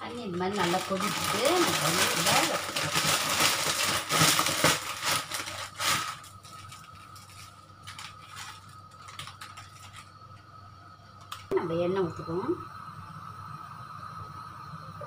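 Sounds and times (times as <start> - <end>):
dry noodles crackling and rustling: 0.0 - 10.2.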